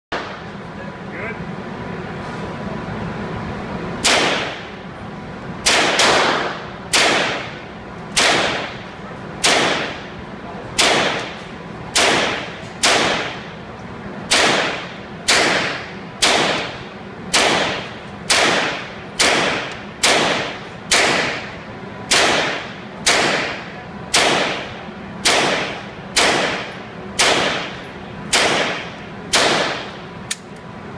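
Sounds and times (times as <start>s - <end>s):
rifle shots ringing indoors: 4.0s - 4.7s, 5.6s - 8.8s, 9.4s - 10.1s, 10.8s - 13.4s, 14.3s - 30.4s.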